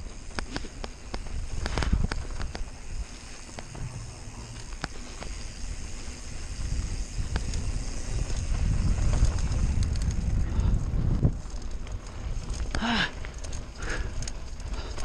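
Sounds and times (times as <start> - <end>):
bike clicks and rattles: 0.0 - 15.0
bike tyres on dirt: 0.0 - 15.0
wind rumbling on microphone: 0.0 - 15.0.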